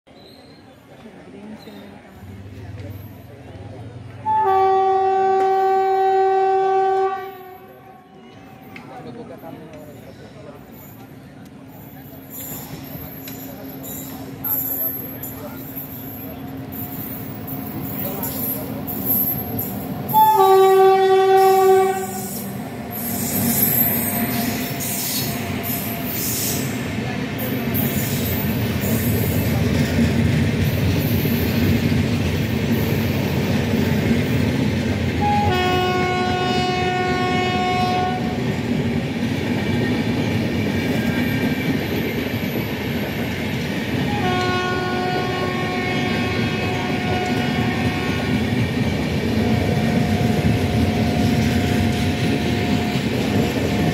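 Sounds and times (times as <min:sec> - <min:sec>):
train coaches rumbling past: 0:00.1 - 0:53.9
train horn blast: 0:04.2 - 0:08.7, 0:20.1 - 0:22.6, 0:35.2 - 0:38.5, 0:44.0 - 0:48.5.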